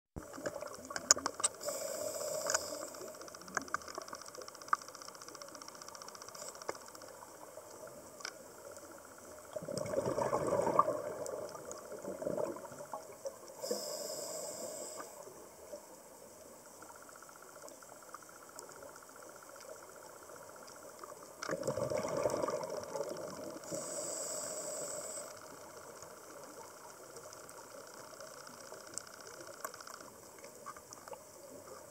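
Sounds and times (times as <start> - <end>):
low hiss: 0.2 - 31.9
regulator inhale hisses: 1.6 - 3.3, 13.6 - 15.4, 23.6 - 25.6
scattered clicks: 2.4 - 7.2
exhaled air bubbling underwater: 7.0 - 15.9, 18.5 - 31.9.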